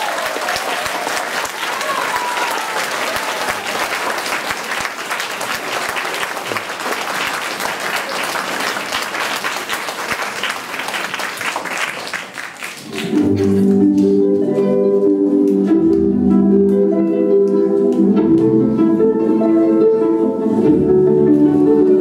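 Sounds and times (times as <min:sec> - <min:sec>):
audience applauding: 0:00.0 - 0:14.1
music: 0:12.9 - 0:22.0.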